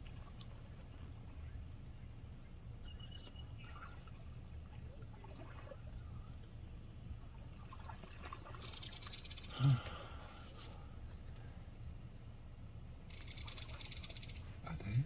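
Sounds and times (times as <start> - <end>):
water sloshing: 0.0 - 1.6, 2.9 - 9.5.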